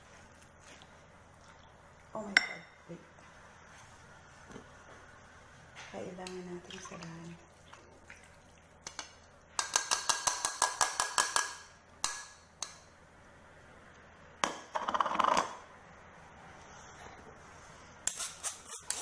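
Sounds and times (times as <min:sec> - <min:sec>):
metal strainer tapping bowl: 0:09.6 - 0:12.8.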